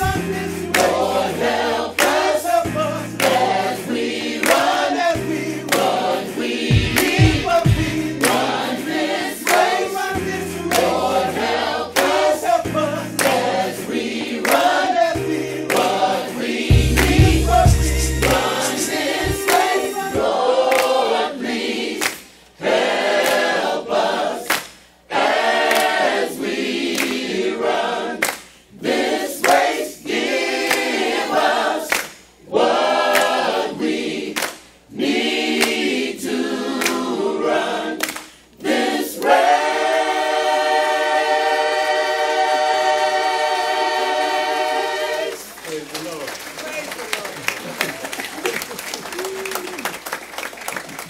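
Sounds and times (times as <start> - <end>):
choir singing: 0.0 - 24.5, 25.1 - 45.6.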